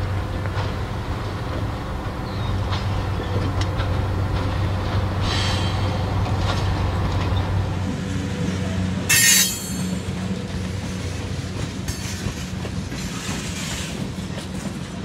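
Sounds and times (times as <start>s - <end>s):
diesel locomotive engine drone: 0.0s - 15.0s
high-pitched rasp: 9.1s - 10.0s.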